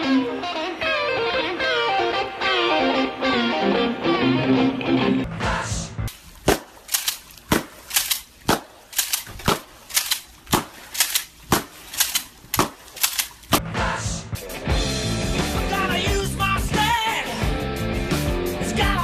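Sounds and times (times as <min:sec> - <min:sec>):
sharp cracks: 0:06.1 - 0:13.6.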